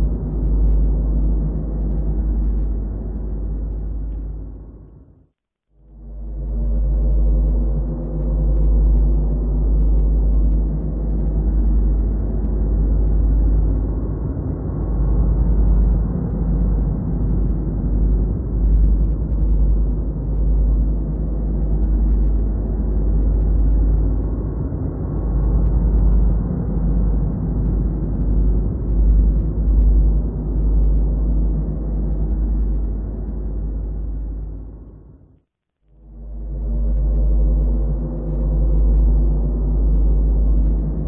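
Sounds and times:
low wind rumble on microphone: 0.0 - 5.2, 5.9 - 35.4, 36.0 - 41.0.

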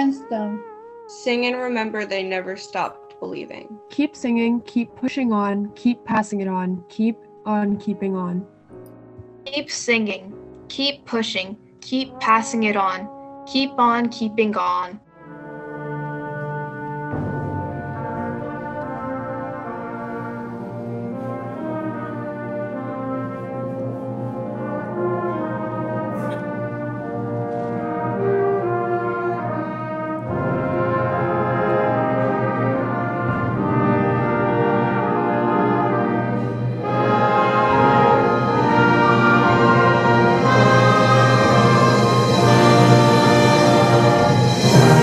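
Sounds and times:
concert band playing: 30.3 - 45.0.

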